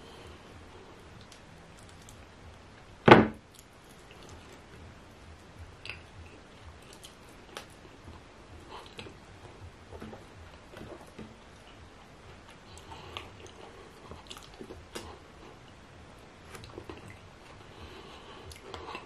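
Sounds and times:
chewing: 0:01.1 - 0:02.2, 0:03.5 - 0:04.8, 0:05.8 - 0:15.8, 0:16.5 - 0:19.0
loud short thump: 0:03.1 - 0:03.4
wet smacks of eating by hand: 0:05.6 - 0:15.2, 0:16.4 - 0:17.6.

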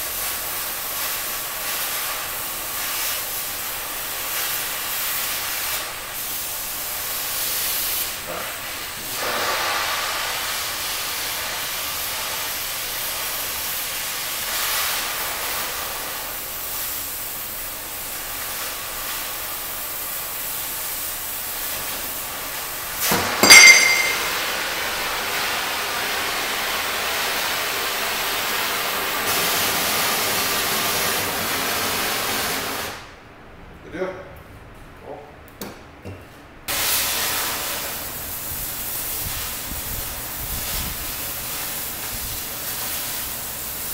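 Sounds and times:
cutting torch hissing: 0:00.1 - 0:23.2
steel piece dropping with clang: 0:23.4 - 0:24.4.

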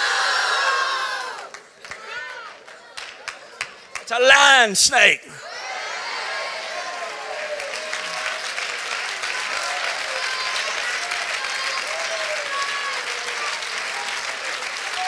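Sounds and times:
crowd clapping and cheering: 0:01.2 - 0:05.2, 0:06.3 - 0:15.0
voices calling out: 0:04.1 - 0:05.4.

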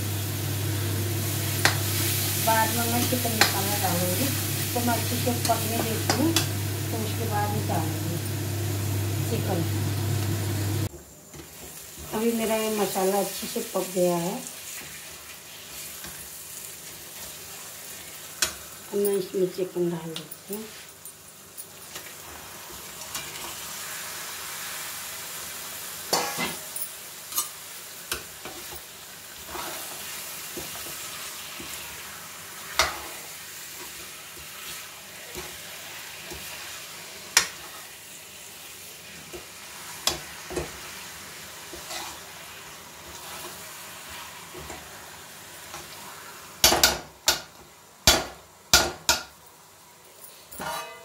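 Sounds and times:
chicken sizzling in a pan: 0:00.0 - 0:51.0
spoon clinking and scraping pan: 0:50.3 - 0:51.0.

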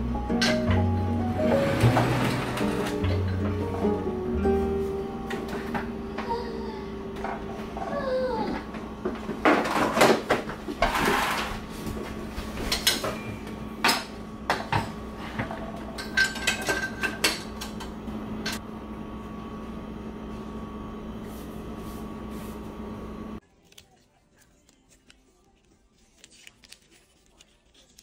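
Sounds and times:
utensils and dishes clattering: 0:00.3 - 0:04.0, 0:07.1 - 0:18.6.

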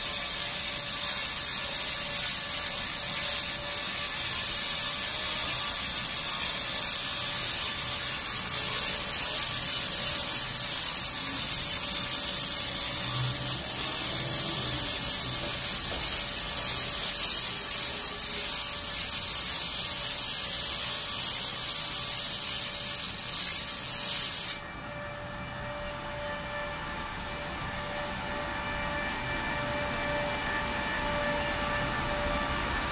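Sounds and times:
laser ablating rust: 0:00.0 - 0:24.6.

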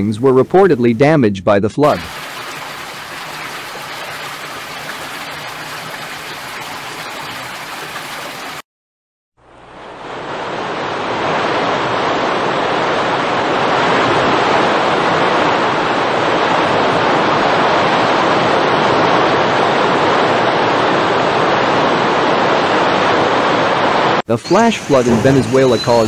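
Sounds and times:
floodwater rushing: 0:01.8 - 0:08.6, 0:24.3 - 0:26.0.

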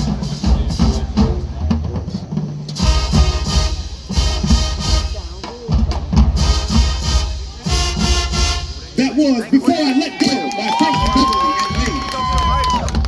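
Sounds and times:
snare drum: 0:00.0 - 0:08.7
brass section playing: 0:02.8 - 0:09.6.

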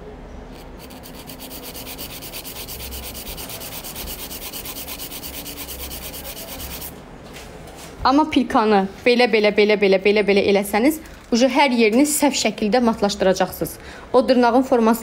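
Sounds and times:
nail file rasping on nail: 0:00.5 - 0:06.9.

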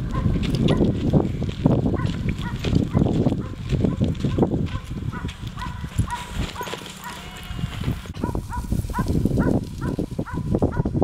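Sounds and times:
dog yipping excitedly: 0:04.7 - 0:07.3, 0:08.2 - 0:11.0.

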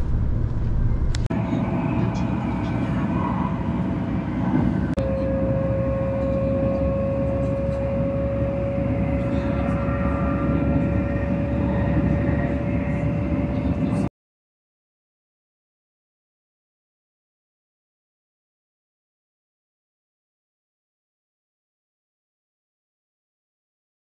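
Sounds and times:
steady whine: 0:00.0 - 0:14.1
vehicle rumble: 0:00.0 - 0:14.1.

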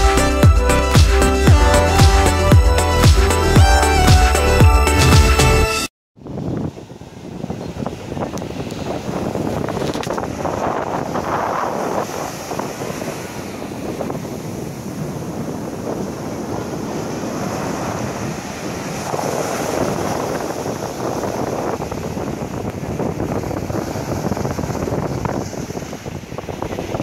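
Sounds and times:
wind buffeting microphone: 0:06.2 - 0:27.0
ocean surf breaking on beach: 0:06.4 - 0:27.0.

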